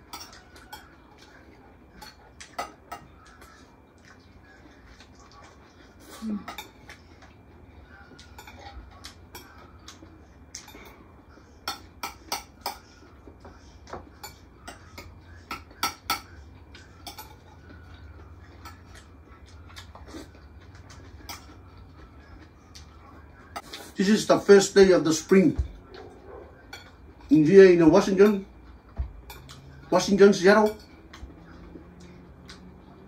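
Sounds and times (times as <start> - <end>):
cutlery clinking on plates: 0.0 - 3.6, 6.4 - 7.4, 8.1 - 19.1, 19.8 - 22.0, 26.0 - 27.2, 28.2 - 31.6
low steady hum: 0.0 - 33.0.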